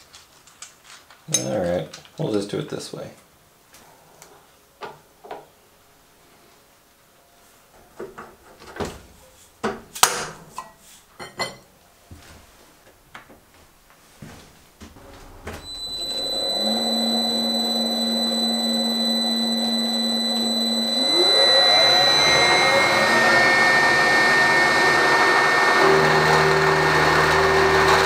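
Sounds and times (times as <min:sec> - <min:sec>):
milling machine motor humming: 0:15.0 - 0:28.0.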